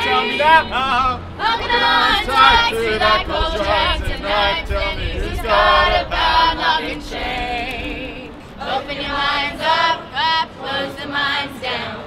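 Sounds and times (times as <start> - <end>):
group singing together: 0.0 - 12.0.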